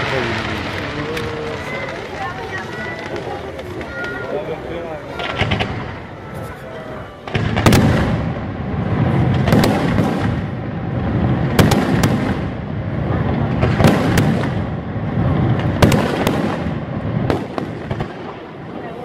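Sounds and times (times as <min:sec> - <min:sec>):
fireworks shells bursting with bangs: 0:00.0 - 0:19.0
rumble and crackle of fireworks: 0:00.0 - 0:19.0.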